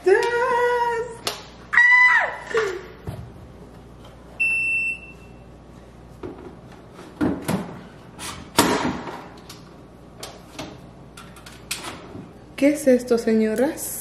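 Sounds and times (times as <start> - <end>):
high refrigerator alarm beep: 4.4 - 5.6
plastic bins knocking and clunking: 6.2 - 7.8.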